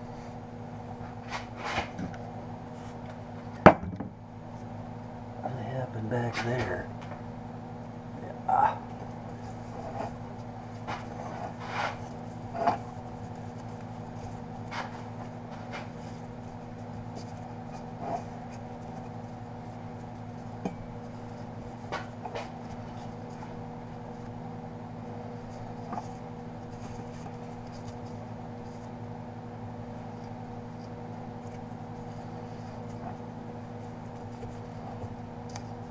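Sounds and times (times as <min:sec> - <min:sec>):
heat wrap rustling and scraping: 0:00.0 - 0:03.4, 0:04.4 - 0:35.9
steady low hum: 0:00.0 - 0:35.9.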